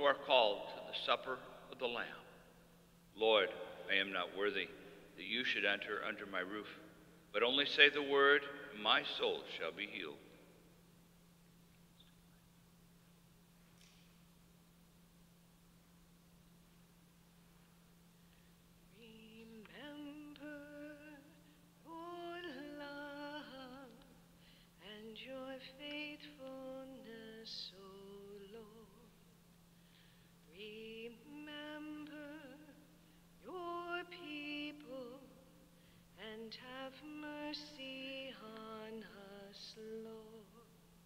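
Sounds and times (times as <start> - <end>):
low electrical hum: 0.0 - 41.0
woman singing a hymn: 18.9 - 24.2, 24.8 - 29.3, 30.5 - 40.8.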